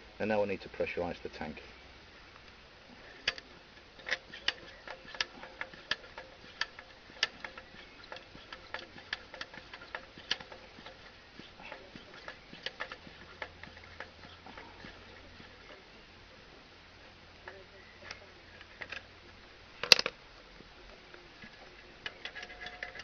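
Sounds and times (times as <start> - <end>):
hand pump clicking: 3.1 - 15.8, 17.4 - 19.1, 19.8 - 20.1, 21.4 - 23.0.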